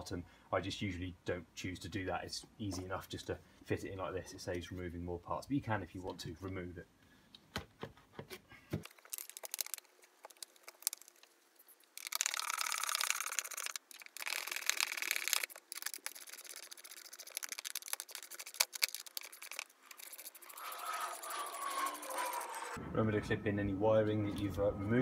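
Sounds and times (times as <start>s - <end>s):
ratchet clicking: 12.0s - 22.8s.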